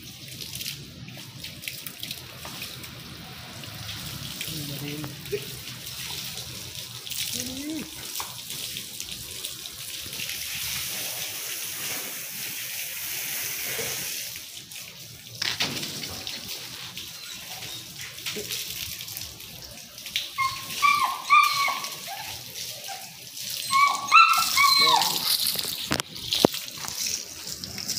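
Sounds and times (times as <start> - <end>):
water spraying from hose: 0.0 - 27.9
dog whining: 17.0 - 18.4, 20.3 - 25.6.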